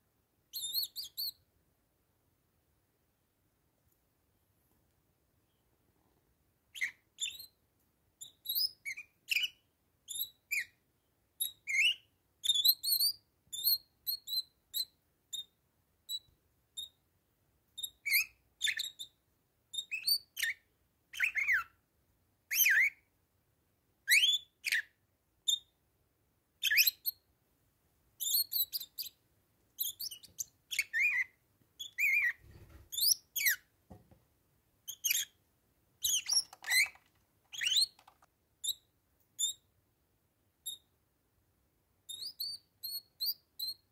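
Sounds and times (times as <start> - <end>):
parakeet whistled chirps: 0.5 - 1.4, 6.7 - 7.6, 8.2 - 10.8, 11.4 - 15.5, 17.8 - 21.7, 22.5 - 23.0, 24.1 - 25.7, 26.6 - 27.2, 28.2 - 29.2, 29.8 - 33.7, 34.9 - 35.4, 36.0 - 39.7, 42.1 - 43.8.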